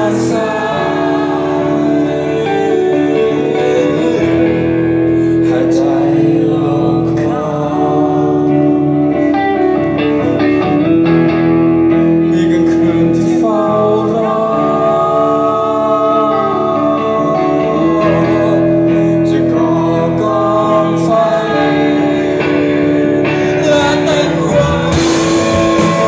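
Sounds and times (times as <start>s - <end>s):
live band playing: 0.0s - 26.0s
person singing: 0.0s - 26.0s.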